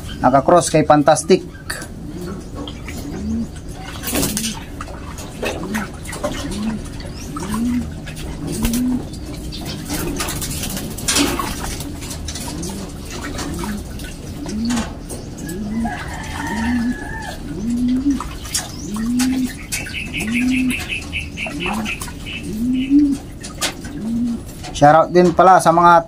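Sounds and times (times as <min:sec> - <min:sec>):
pigeons cooing: 0:00.0 - 0:26.0
water splashing in metal basin: 0:02.6 - 0:24.7.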